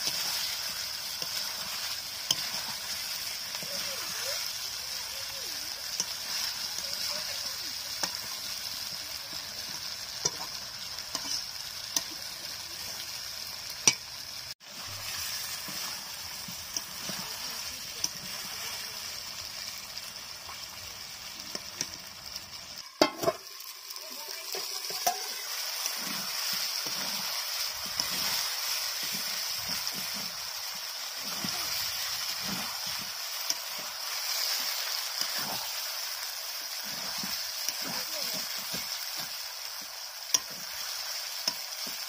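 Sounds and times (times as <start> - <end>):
spatula stirring and scraping: 0.0 - 13.1, 14.6 - 19.2, 24.3 - 42.0
food sizzling in hot oil: 0.0 - 42.0.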